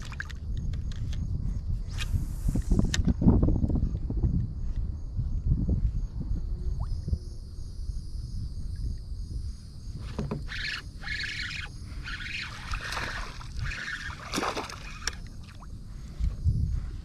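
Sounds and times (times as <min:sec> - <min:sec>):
wind rumble on microphone: 0:00.0 - 0:17.0
paddle knocking plastic hull: 0:10.0 - 0:10.5
paddle strokes splashing: 0:10.1 - 0:15.6.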